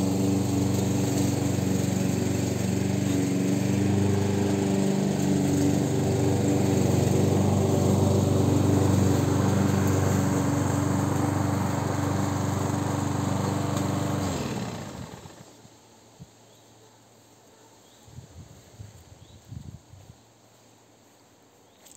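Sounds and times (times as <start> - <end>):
engine winding down: 0.0 - 15.5
lawn mower engine running: 0.0 - 15.6.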